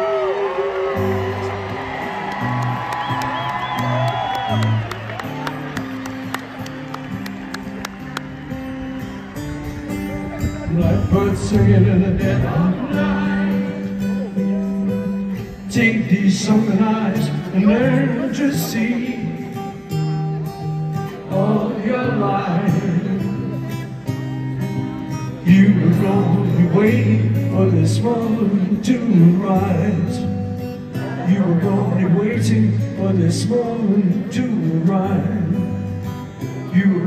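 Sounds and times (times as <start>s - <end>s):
fingerpicked acoustic guitar: 0.6s - 37.0s
man singing: 10.5s - 20.4s, 21.0s - 24.1s, 25.0s - 37.0s.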